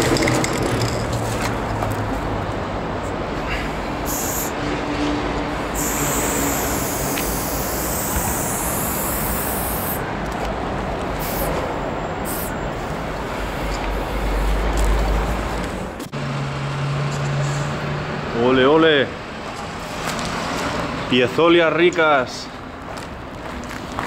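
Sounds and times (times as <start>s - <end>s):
spray paint can hissing: 4.0s - 4.6s, 5.7s - 10.0s, 11.2s - 11.6s, 12.3s - 12.5s.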